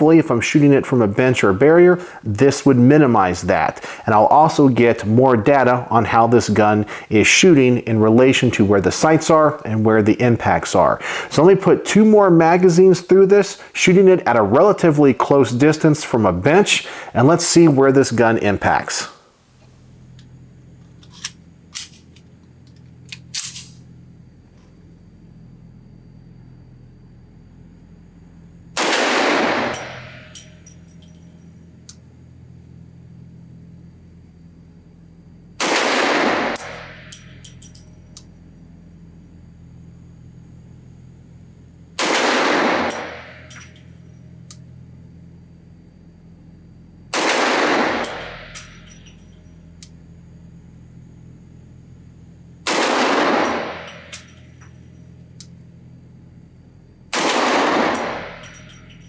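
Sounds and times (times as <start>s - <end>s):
pistol shots: 28.8s - 30.3s, 35.6s - 37.1s, 42.0s - 43.5s, 47.1s - 48.6s, 52.6s - 54.2s, 57.1s - 58.6s
faint metallic clinks: 29.8s - 31.8s, 36.7s - 38.6s, 43.0s - 44.4s, 48.0s - 49.9s, 53.7s - 55.2s, 58.0s - 59.0s.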